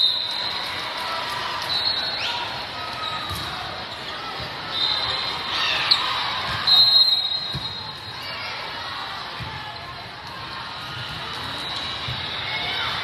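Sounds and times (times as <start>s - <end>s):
referee whistle blasts: 0.0s - 0.5s, 6.6s - 7.9s
echoing crowd chatter: 0.0s - 13.0s.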